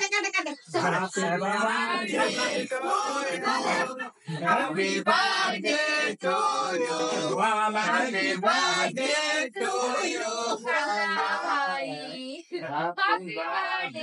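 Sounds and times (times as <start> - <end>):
man singing: 0.8 - 5.0.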